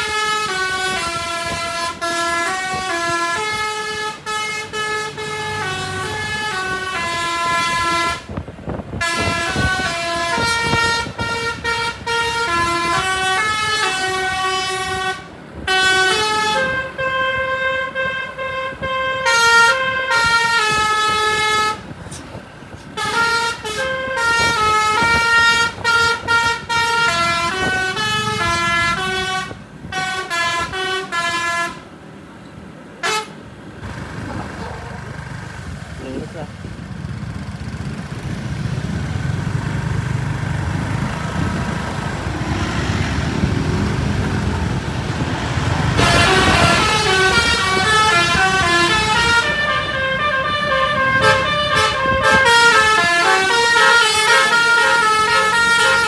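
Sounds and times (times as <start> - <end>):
air horn melody from keyboard: 0.0 - 8.3, 9.0 - 21.8, 23.0 - 31.8, 33.0 - 33.4, 45.9 - 56.0.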